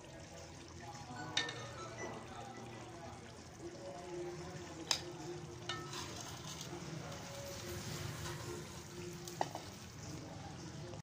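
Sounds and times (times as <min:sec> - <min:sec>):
curry bubbling and sizzling: 0:00.0 - 0:11.0
metal spoon clinking against pot: 0:01.3 - 0:01.8, 0:04.8 - 0:07.4.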